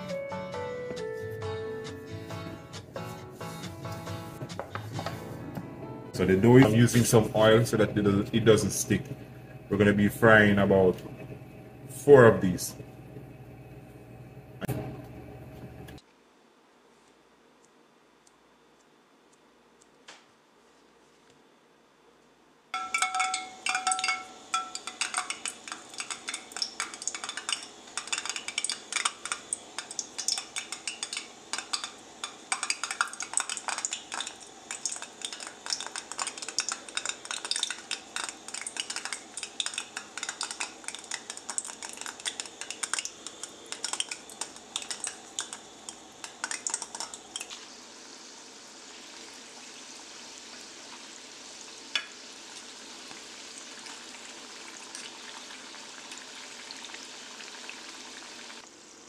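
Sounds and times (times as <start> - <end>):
dumplings frying in hot oil: 22.8 - 59.0.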